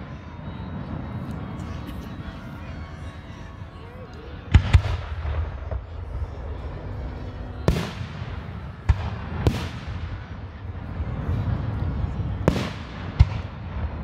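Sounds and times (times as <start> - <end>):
fireworks bangs: 4.5 - 6.6, 7.6 - 11.6, 12.4 - 14.0.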